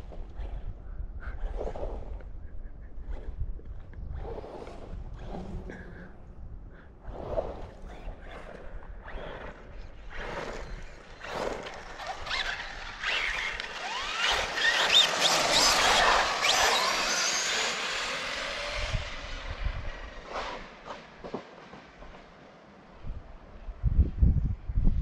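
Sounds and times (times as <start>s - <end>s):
electric motors whining: 9.0s - 20.8s.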